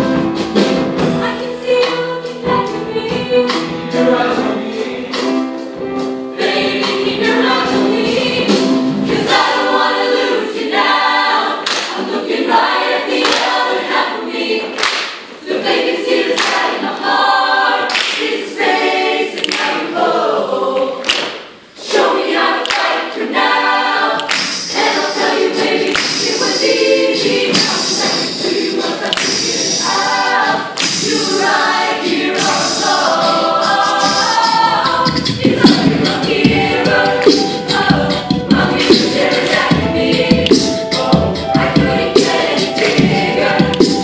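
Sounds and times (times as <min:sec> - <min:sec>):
choir singing in harmony: 0:00.0 - 0:44.0
sharp percussive hits: 0:24.2 - 0:31.6, 0:32.3 - 0:44.0.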